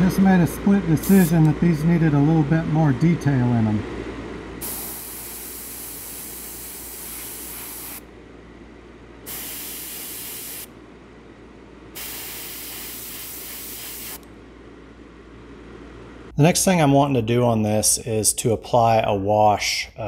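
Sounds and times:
airbrush spraying hiss: 1.0 - 1.4, 4.6 - 8.0, 9.3 - 10.7, 12.0 - 14.2.

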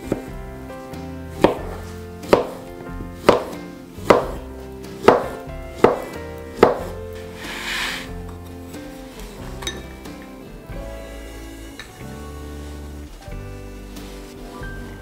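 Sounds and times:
blade knocking cutting board: 1.4 - 4.4, 5.0 - 8.0.

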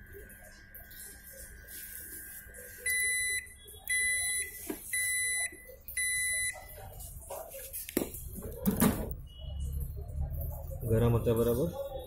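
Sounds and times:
faint steady high tone: 0.0 - 6.7
microwave oven beeps: 0.0 - 7.0, 8.7 - 10.2.

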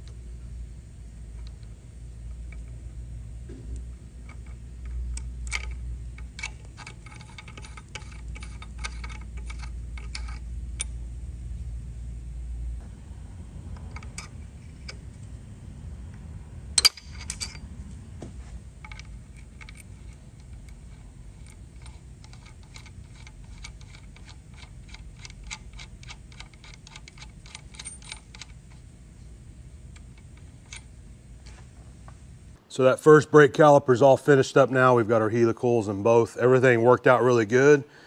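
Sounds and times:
sharp metallic snap: 16.8 - 17.6.

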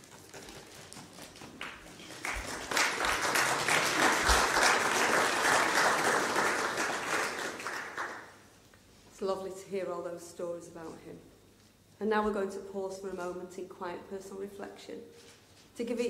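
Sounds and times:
congregation applauding: 0.0 - 8.5.

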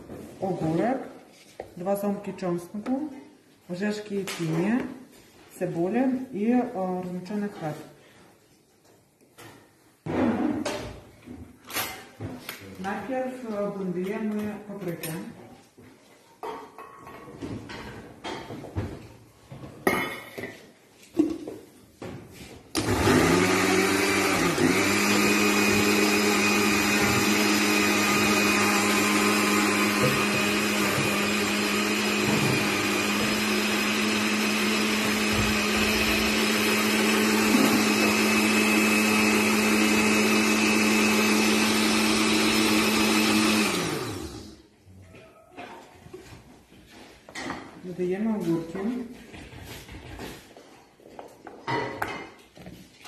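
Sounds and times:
blender motor running: 22.8 - 44.6.

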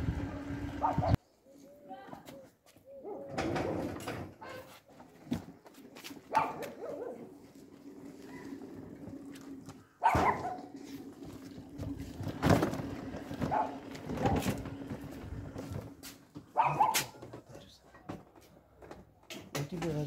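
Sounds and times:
dog barking: 0.8 - 1.2, 6.3 - 7.3, 10.0 - 10.7, 13.5 - 14.4, 16.5 - 17.2.

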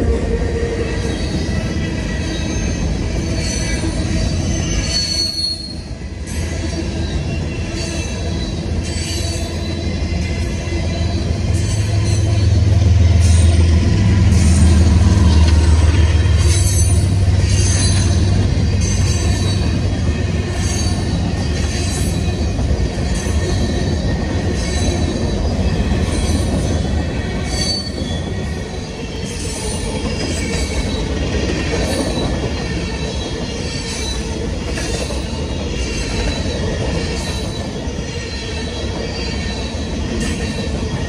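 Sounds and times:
diesel locomotive engine rumble: 0.0 - 41.0
train wheels rumbling on rails: 0.0 - 41.0
high-pitched wheel squeal: 0.9 - 5.9, 6.7 - 26.7, 27.4 - 31.2.

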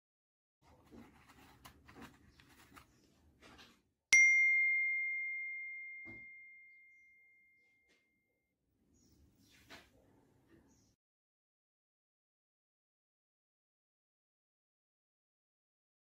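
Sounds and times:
faint clicking and handling: 0.6 - 3.8
bell-like ding: 4.2 - 8.1.

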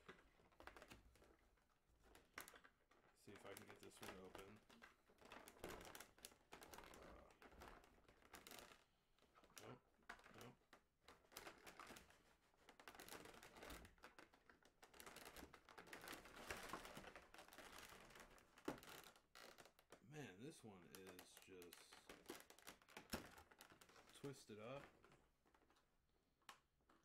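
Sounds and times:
plastic blister tray crinkling: 20.9 - 25.9.

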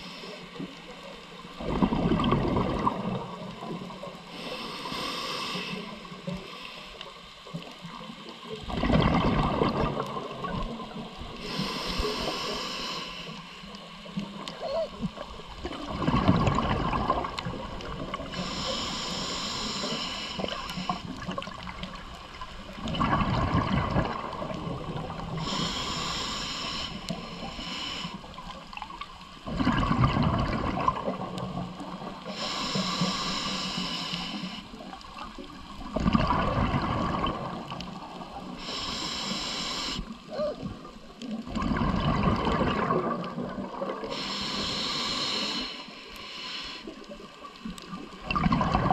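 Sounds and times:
regulator hissing inhale: 0.0 - 1.4, 4.2 - 7.6, 11.3 - 13.9, 18.2 - 21.2, 25.3 - 28.6, 32.2 - 35.0, 38.5 - 40.3, 44.0 - 47.4
exhaled bubbles bursting: 1.6 - 4.0, 8.6 - 11.3, 14.6 - 18.3, 22.6 - 25.5, 29.4 - 32.1, 35.8 - 38.5, 40.4 - 44.2, 47.8 - 48.9.

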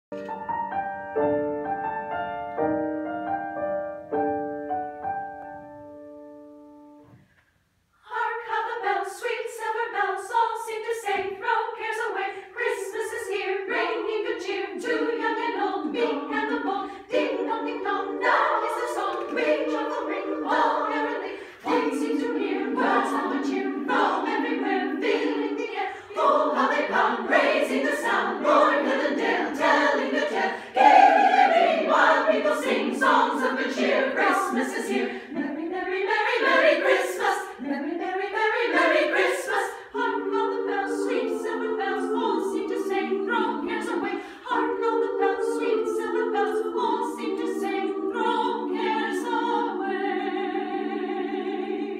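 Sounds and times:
piano chords: 0.1 - 7.2
women's choir singing a carol: 8.0 - 51.9.

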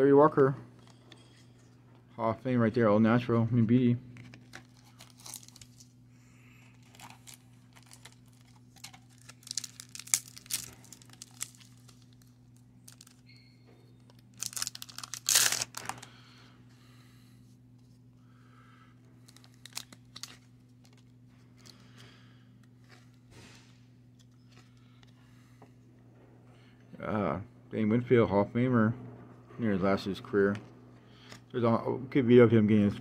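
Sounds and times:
foil card pack crinkling and tearing: 4.2 - 6.0, 6.6 - 13.2, 14.0 - 16.2, 19.2 - 21.9.

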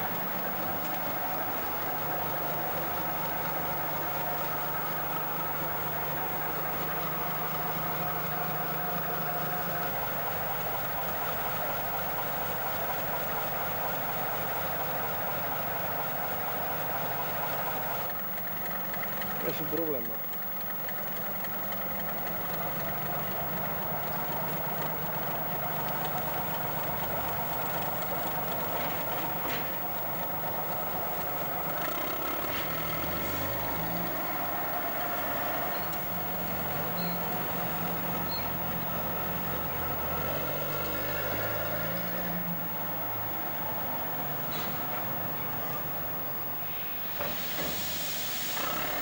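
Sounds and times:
locomotive diesel engine running: 0.0 - 49.0.

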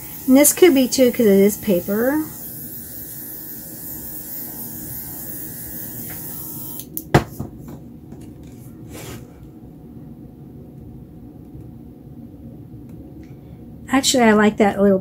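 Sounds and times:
airbrush hissing air: 0.0 - 6.8.

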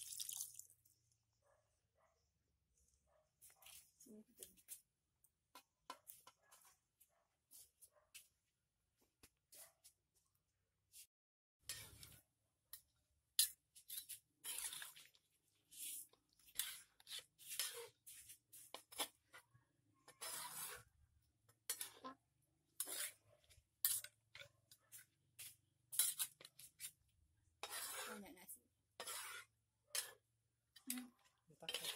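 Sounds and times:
metal spoon scraping a wok: 11.6 - 19.4, 20.0 - 31.9.

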